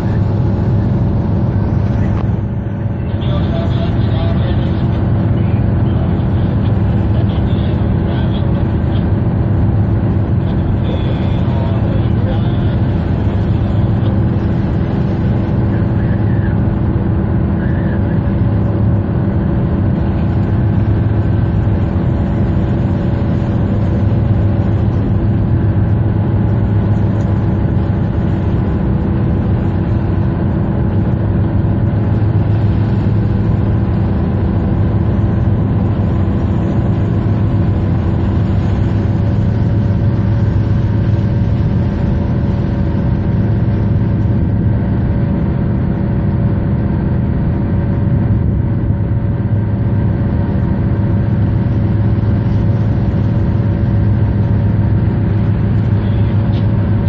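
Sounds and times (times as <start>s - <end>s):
tugboat diesel engines droning: 0.0s - 57.0s.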